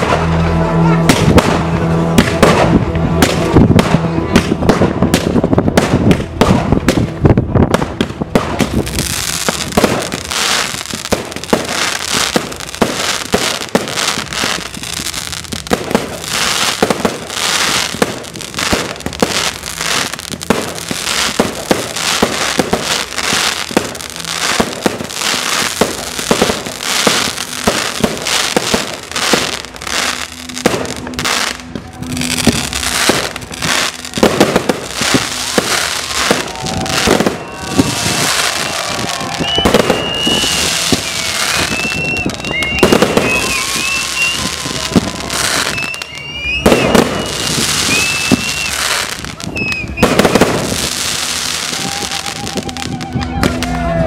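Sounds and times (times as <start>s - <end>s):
fireworks bangs: 0.0s - 54.0s
fireworks popping and crackling: 0.0s - 54.0s.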